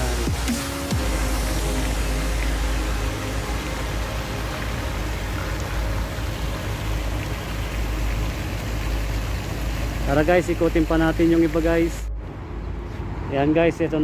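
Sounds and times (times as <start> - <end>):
fountain water splashing: 0.0 - 12.1.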